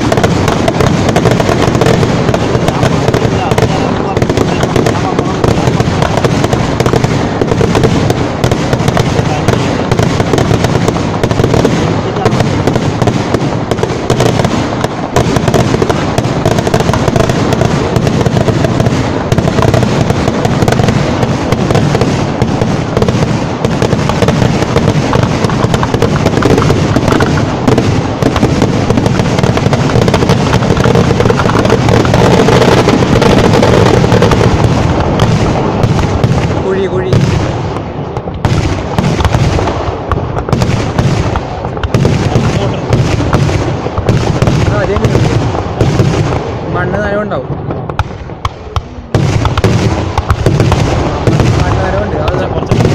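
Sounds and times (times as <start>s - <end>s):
rapid firecracker bangs: 0.0s - 52.9s.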